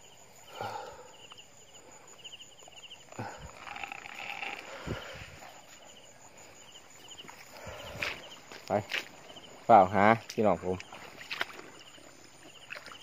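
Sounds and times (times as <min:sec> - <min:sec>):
walking through wet grass: 0:03.5 - 0:13.0.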